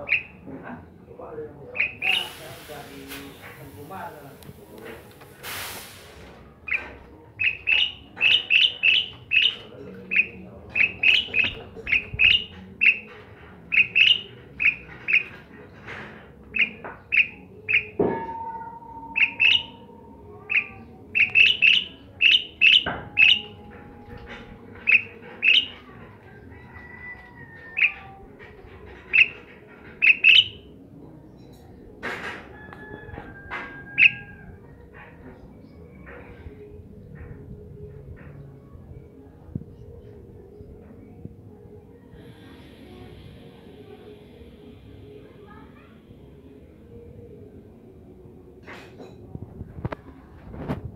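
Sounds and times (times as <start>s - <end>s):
bird chirping: 0.0s - 0.4s, 1.7s - 2.3s, 7.4s - 13.1s, 13.7s - 15.3s, 16.5s - 18.0s, 19.0s - 23.6s, 24.8s - 25.8s, 29.1s - 29.4s, 30.0s - 30.7s, 34.0s - 34.3s.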